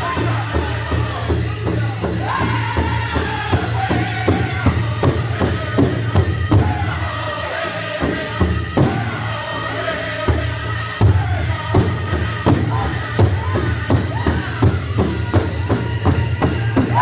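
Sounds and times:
big drum beating: 0.0s - 7.2s, 8.0s - 9.4s
group singing in high voices: 0.0s - 17.0s.

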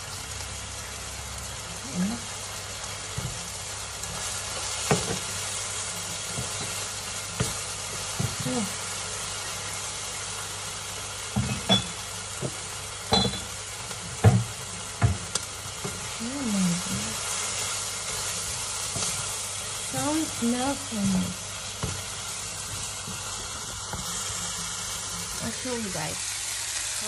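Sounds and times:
food sizzling in frying pan: 0.0s - 27.0s.

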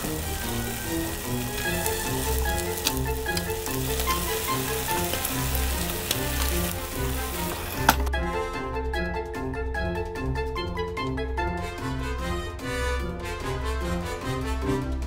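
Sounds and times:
pastry sizzling: 0.0s - 8.1s
background music: 0.0s - 15.0s.

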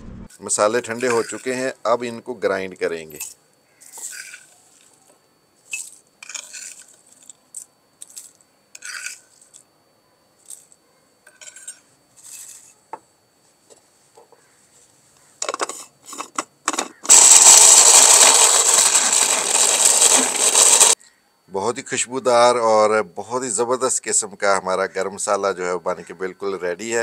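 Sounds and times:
electric grinder grinding spices: 1.0s - 1.6s, 15.5s - 21.0s
metal spoon clinking on plate and jar: 5.7s - 6.8s, 11.3s - 11.8s.

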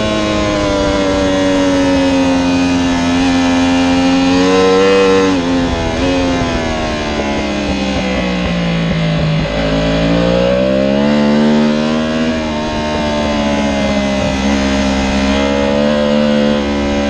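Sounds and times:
superbike engine at racing speed: 0.0s - 17.0s.

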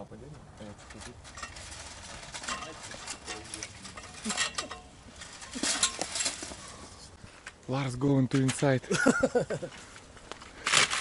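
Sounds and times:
person climbing chain-link fence: 0.6s - 7.5s, 10.3s - 11.0s.

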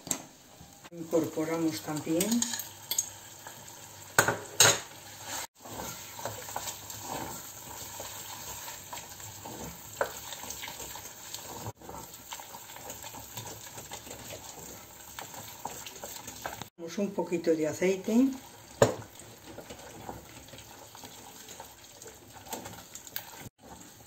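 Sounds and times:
food sizzling: 0.0s - 24.0s
wooden spoon scraping a pan: 4.9s - 16.7s, 18.0s - 24.0s.

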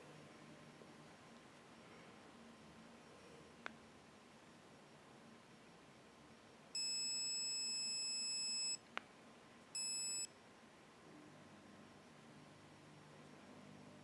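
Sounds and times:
camera beeping: 6.8s - 8.8s, 9.8s - 10.3s.

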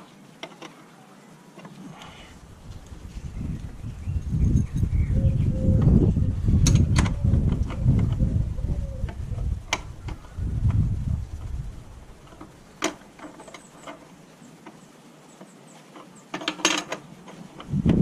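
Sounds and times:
low rumble: 2.4s - 12.3s.

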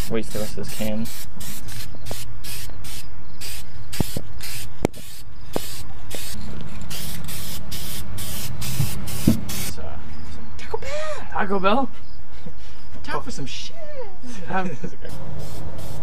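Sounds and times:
spray paint hissing bursts: 0.0s - 9.8s, 15.1s - 16.0s.

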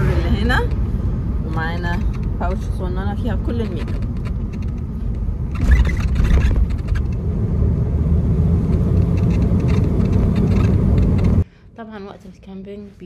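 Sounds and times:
road and engine rumble in cabin: 0.0s - 11.5s
light rattles: 1.5s - 7.3s.

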